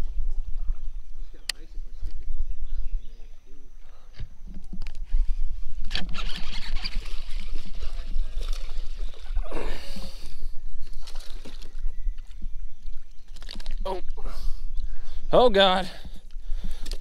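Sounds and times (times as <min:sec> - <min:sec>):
low microphone rumble: 0:00.0 - 0:10.9
knocks and clicks from rod and reel: 0:04.1 - 0:09.2
fish splashing in water: 0:10.8 - 0:12.3.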